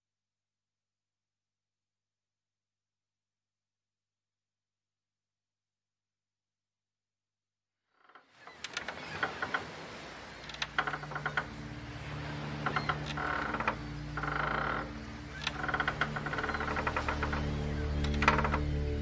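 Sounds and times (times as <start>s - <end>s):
ship timbers creaking: 8.0s - 19.0s
low music drone: 11.0s - 19.0s.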